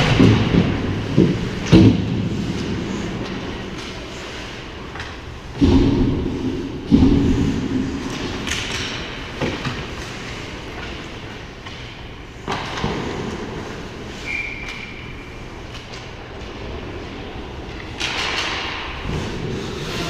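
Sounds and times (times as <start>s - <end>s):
skates scraping ice: 19.0s - 20.0s.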